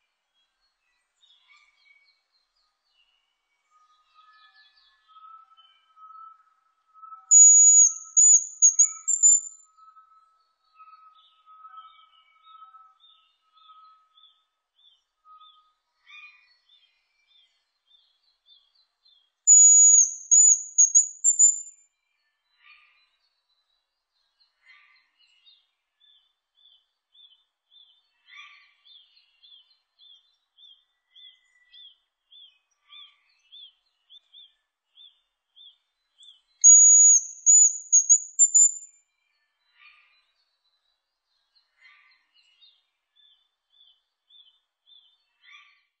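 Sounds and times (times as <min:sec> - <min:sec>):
high thin whistled bird song: 0:07.0 - 0:10.6, 0:19.2 - 0:21.9, 0:36.1 - 0:39.1
faint short bird chirps: 0:07.3 - 0:09.6, 0:19.5 - 0:21.8, 0:36.6 - 0:38.9
lower bird calls: 0:07.3 - 0:09.6, 0:19.5 - 0:21.7, 0:36.6 - 0:38.9.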